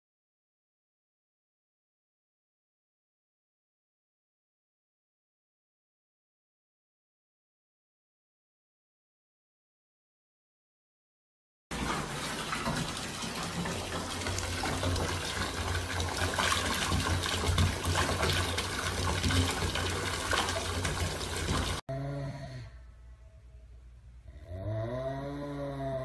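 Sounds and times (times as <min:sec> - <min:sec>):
water pouring into bathtub: 0:11.7 - 0:21.8.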